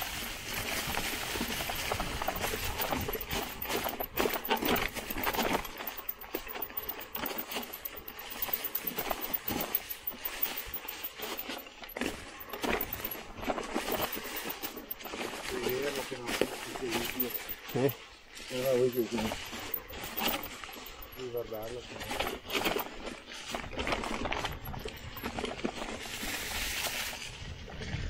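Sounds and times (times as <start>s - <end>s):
bike tyres crunching dry leaves: 0.0s - 3.2s, 25.3s - 28.0s
bike clicks and rattles: 0.0s - 28.0s.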